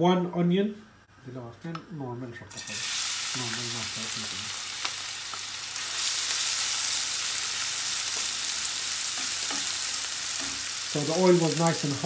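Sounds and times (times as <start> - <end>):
onion sizzling in oil: 2.5 - 12.0.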